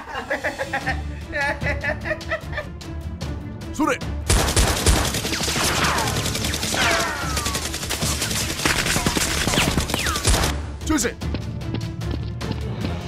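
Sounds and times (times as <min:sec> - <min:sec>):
rapid automatic gunfire: 0:04.3 - 0:10.5.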